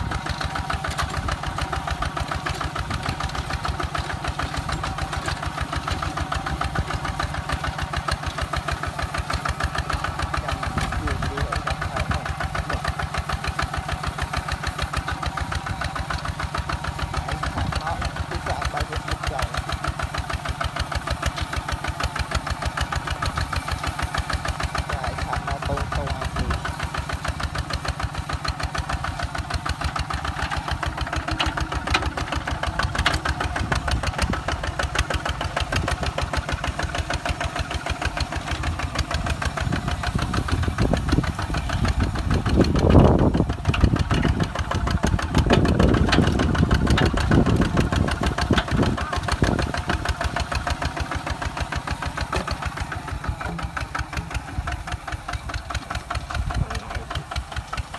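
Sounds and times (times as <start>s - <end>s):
diesel tractor engine chugging: 0.0s - 57.9s.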